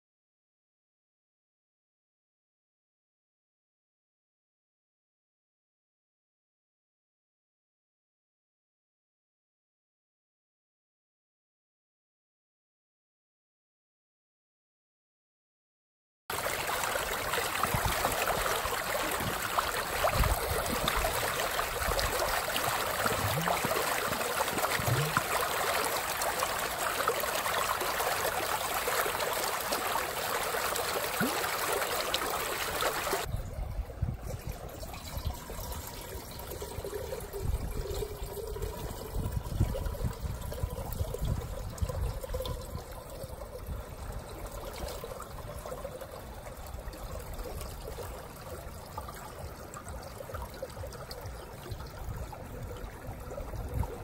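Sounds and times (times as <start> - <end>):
stream water rushing: 16.3 - 33.3
water trickling from a jug: 16.3 - 54.0.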